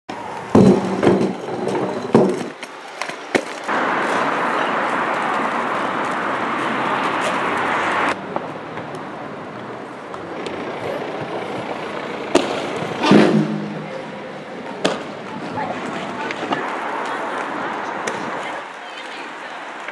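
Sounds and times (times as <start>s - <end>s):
skate wheels rolling over paving: 0.1s - 13.3s, 13.9s - 19.9s
clattering knocks: 0.5s - 2.6s.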